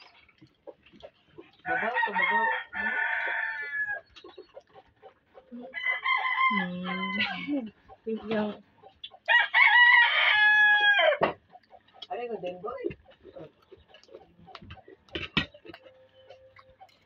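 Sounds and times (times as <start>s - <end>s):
rooster crowing: 1.7s - 4.0s, 5.7s - 7.6s, 9.3s - 11.2s.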